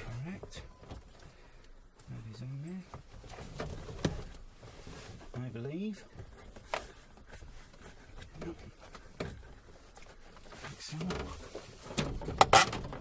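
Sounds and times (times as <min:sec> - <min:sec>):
plastic parts clicking and knocking: 0:11.9 - 0:13.0.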